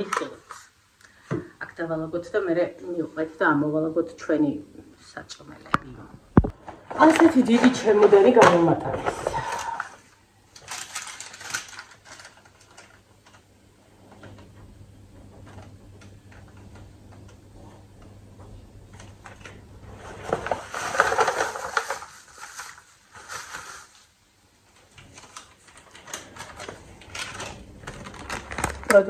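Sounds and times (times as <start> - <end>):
paper bags rustling and crinkling: 6.6 - 9.8, 10.5 - 13.4, 18.9 - 24.2, 24.8 - 29.0.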